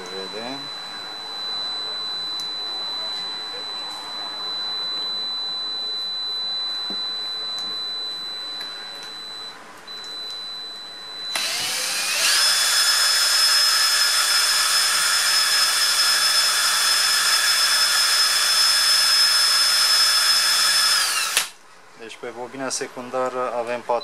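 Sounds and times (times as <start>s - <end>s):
cordless drill whining: 11.3s - 21.6s.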